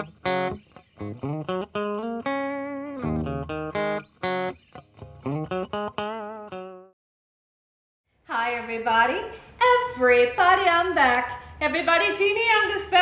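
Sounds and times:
plucked guitar melody: 0:00.0 - 0:06.9.

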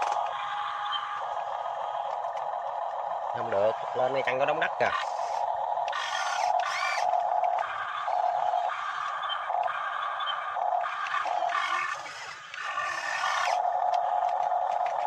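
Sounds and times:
small electric motors whining: 0:00.0 - 0:15.0.

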